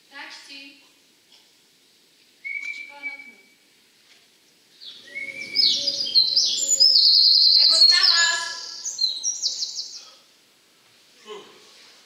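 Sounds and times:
bird-like chirping and whistling: 2.4s - 3.6s, 4.9s - 10.1s.

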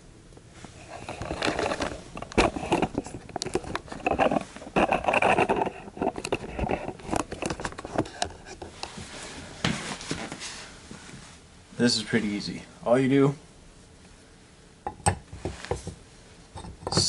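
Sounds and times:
rustling: 0.5s - 12.5s
sharp clicks and knocks: 1.0s - 8.7s.

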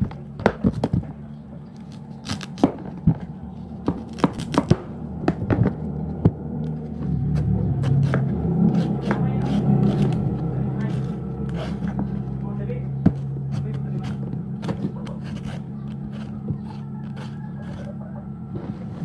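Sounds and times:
steady low hum: 0.0s - 19.0s
peeler scraping potato skin: 1.8s - 2.7s, 7.4s - 12.0s, 13.1s - 18.0s.

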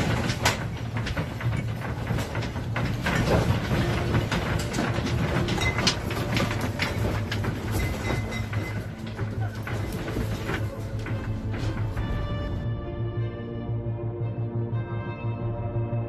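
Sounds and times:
room fittings rattling and knocking: 0.0s - 12.7s.

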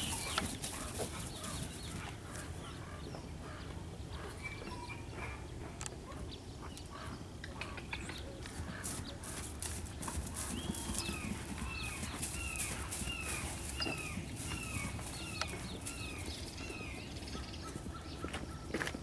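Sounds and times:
hoofbeats on grass: 0.0s - 2.6s, 8.5s - 19.0s.

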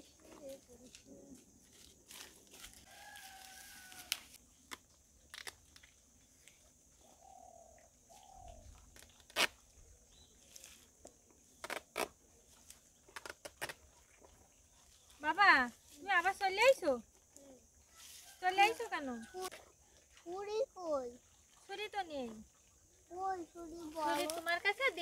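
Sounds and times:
leaf snapping and rustling: 1.7s - 5.9s, 24.1s - 24.5s
faint rooster crowing: 2.7s - 4.4s, 17.8s - 20.0s.

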